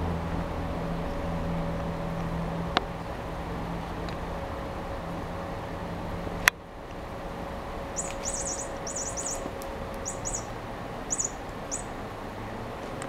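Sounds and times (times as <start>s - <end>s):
toy chirping: 8.0s - 11.9s.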